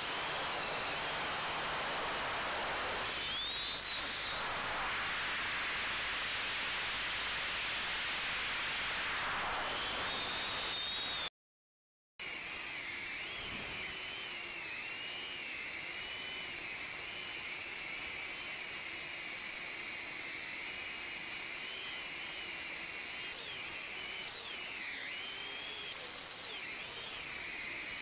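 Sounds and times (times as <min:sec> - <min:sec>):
drone motors whining: 0:00.0 - 0:07.1, 0:08.8 - 0:11.3, 0:12.4 - 0:28.0.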